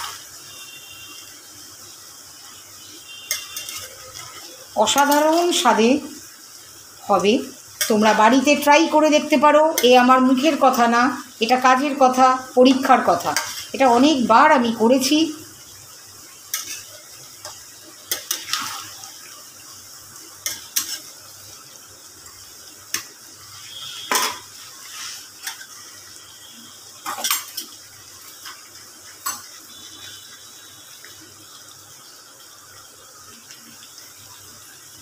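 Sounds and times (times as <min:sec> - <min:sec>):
faint sizzle: 0:00.0 - 0:35.0
metal spatula scraping a pan: 0:03.2 - 0:05.6, 0:13.1 - 0:14.0, 0:16.5 - 0:19.2, 0:20.4 - 0:21.2, 0:22.9 - 0:25.8, 0:27.0 - 0:27.8.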